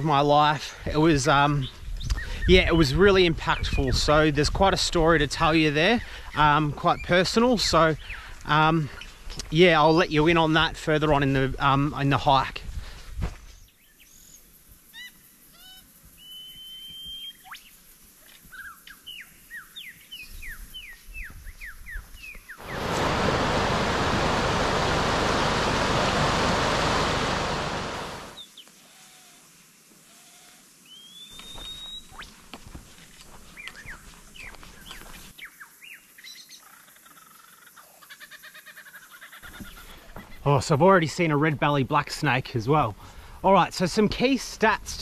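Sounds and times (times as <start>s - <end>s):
forest birds chirping and whistling: 1.5s - 4.1s, 6.2s - 9.5s, 13.4s - 23.0s, 28.2s - 29.4s, 30.1s - 32.5s, 33.4s - 40.5s
stream rapids rushing: 22.6s - 28.4s.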